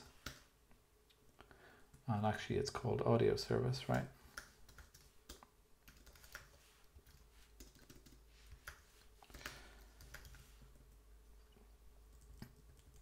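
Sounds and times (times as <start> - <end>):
faint computer keyboard typing: 0.0 - 0.5, 3.9 - 11.0, 12.1 - 13.0.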